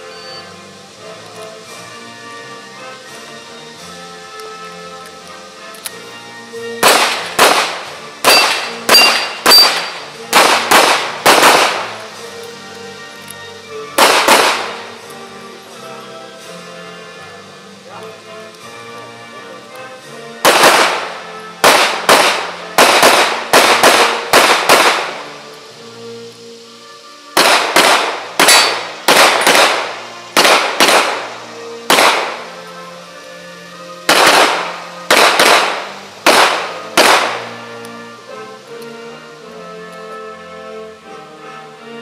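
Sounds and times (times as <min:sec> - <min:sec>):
quiet background music: 0:00.0 - 0:42.0
handgun shots: 0:06.8 - 0:11.9, 0:14.0 - 0:14.8, 0:20.5 - 0:25.2, 0:27.4 - 0:31.3, 0:31.9 - 0:32.4, 0:34.1 - 0:37.4.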